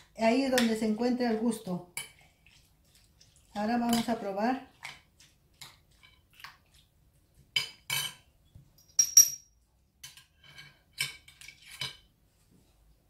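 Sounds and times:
metal spoon clinking on glass bowl: 0:08.8 - 0:09.5.

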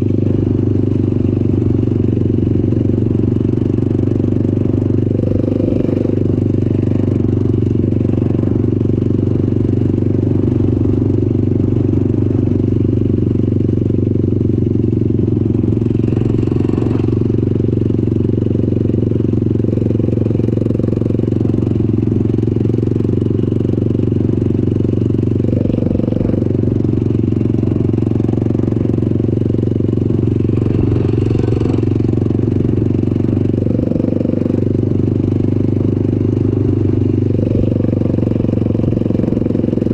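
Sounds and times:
vehicle engine running loud: 0:00.0 - 0:39.9.

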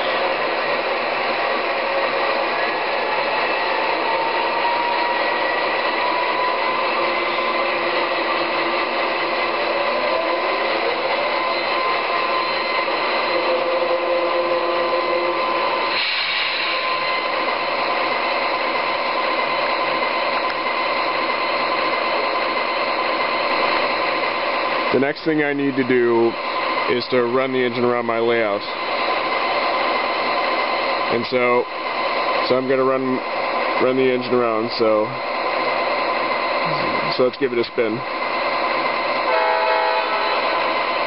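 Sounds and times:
short burst of hiss: 0:15.9 - 0:16.8.

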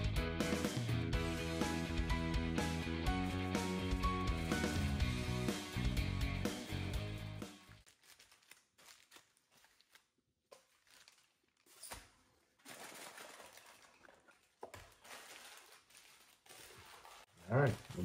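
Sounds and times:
background music: 0:00.0 - 0:07.8
aluminium foil crinkling: 0:07.7 - 0:18.0.

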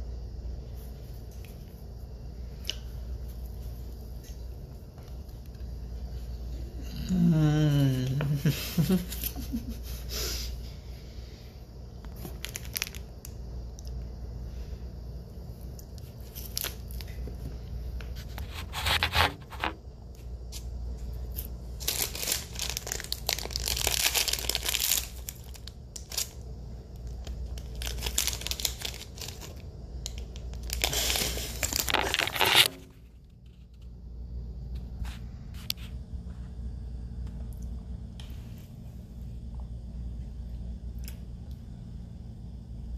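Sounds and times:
plastic bag crinkling and tearing: 0:12.2 - 0:13.1, 0:21.8 - 0:26.4, 0:27.0 - 0:32.8.

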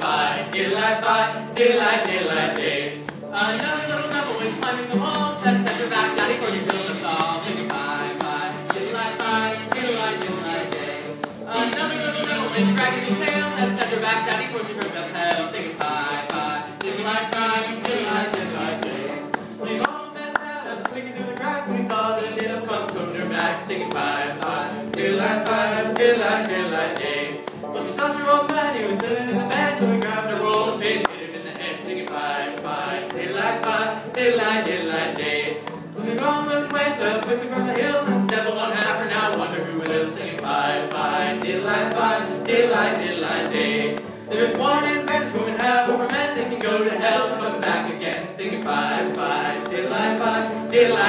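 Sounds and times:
acoustic guitar strumming: 0:00.0 - 0:51.0
kazoo buzzing a tune: 0:16.8 - 0:19.3.

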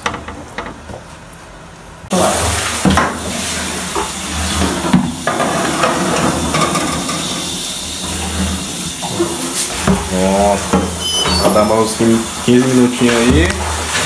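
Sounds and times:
loud steady hiss: 0:02.1 - 0:14.0.

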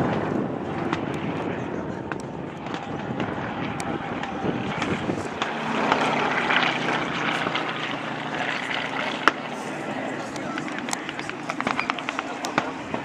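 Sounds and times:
scattered pops: 0:00.0 - 0:01.4, 0:02.0 - 0:09.5, 0:10.2 - 0:13.0
propeller plane engine drone: 0:00.0 - 0:13.0
sharp crack: 0:02.1 - 0:08.6, 0:10.3 - 0:13.0.

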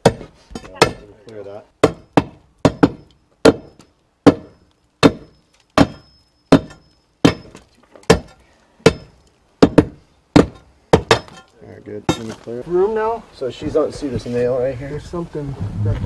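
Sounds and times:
steel bar striking concrete: 0:01.9 - 0:12.4.

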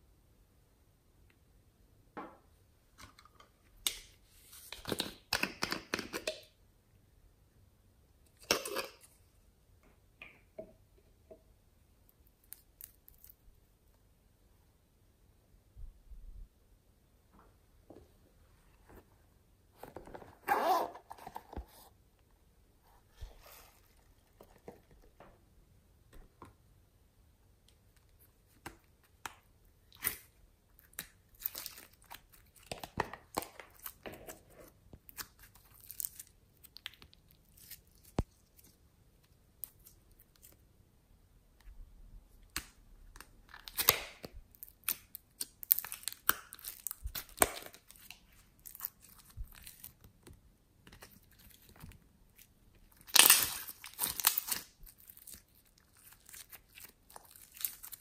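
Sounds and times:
slime squelching and popping: 0:42.4 - 0:50.2, 0:50.9 - 0:58.0.

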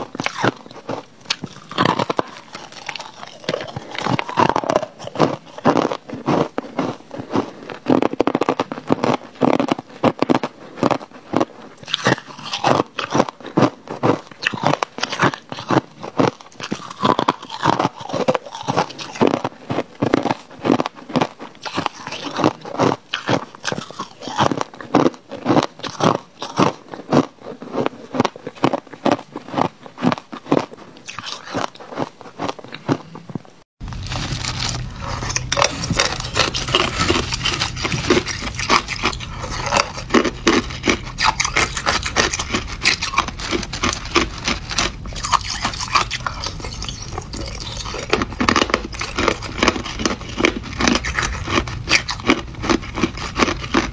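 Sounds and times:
ice being chewed: 0:00.0 - 0:53.9.

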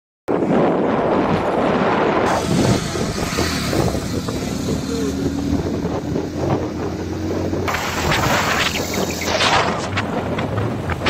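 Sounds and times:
road and wind noise: 0:00.3 - 0:11.0
motorcycle engine running: 0:02.3 - 0:11.0.

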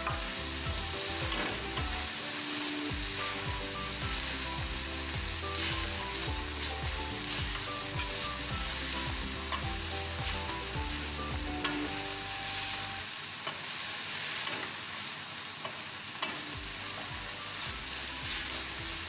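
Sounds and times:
wooden spatula scraping wok: 0:00.0 - 0:12.9
vegetables sizzling in oil: 0:00.0 - 0:19.0.

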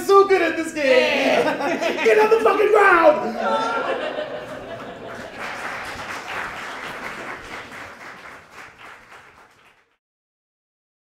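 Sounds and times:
audience applauding: 0:03.5 - 0:10.0.

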